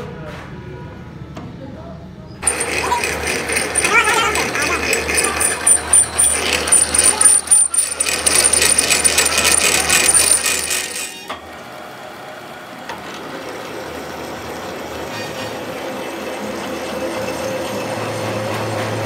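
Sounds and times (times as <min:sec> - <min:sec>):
drill bit squealing: 0:02.4 - 0:11.3
metallic clatter: 0:02.4 - 0:11.3
lathe running: 0:02.4 - 0:19.0.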